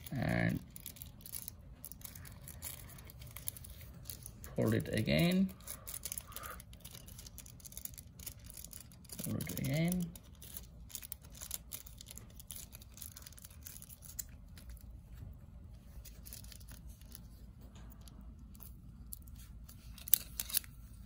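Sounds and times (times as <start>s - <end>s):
aluminium foil crinkling: 0.0s - 15.2s, 15.8s - 21.0s
low steady hum: 0.0s - 21.0s.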